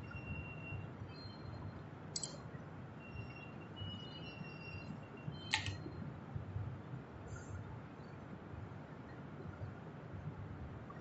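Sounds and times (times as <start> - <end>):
metallic click of hex key: 2.2 - 2.4, 5.5 - 5.8.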